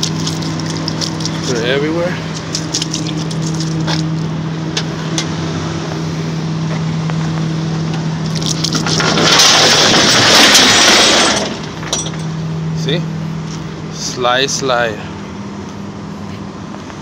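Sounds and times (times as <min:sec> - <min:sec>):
truck engine humming: 0:00.0 - 0:17.0.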